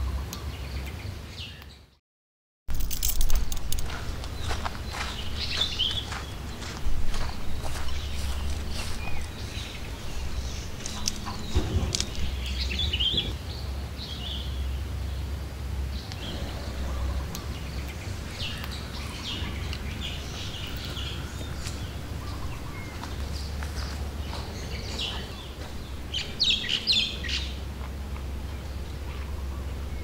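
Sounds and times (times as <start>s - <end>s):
rustles and light clicks: 2.7s - 6.0s, 6.6s - 13.3s
steady low rumble: 2.7s - 30.0s
small birds chirping: 3.0s - 30.0s.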